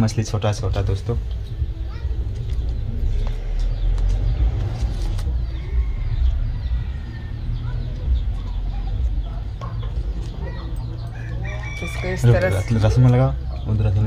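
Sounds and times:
chickens clucking: 7.6s - 14.0s.

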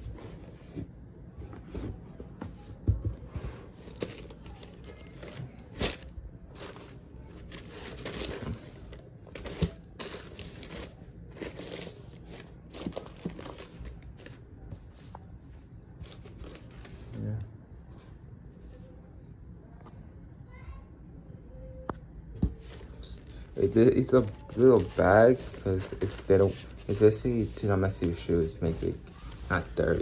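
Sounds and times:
tissue paper crinkling: 3.8s - 14.4s, 22.6s - 30.0s
cloth bag rustling: 22.6s - 30.0s.

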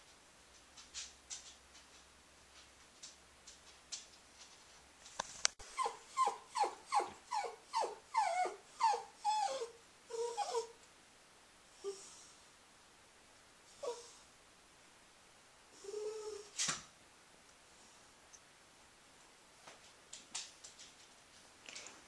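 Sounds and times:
dog whining: 5.6s - 10.8s, 13.8s - 14.2s, 15.8s - 16.5s
faint light ticks: 18.3s - 18.5s.

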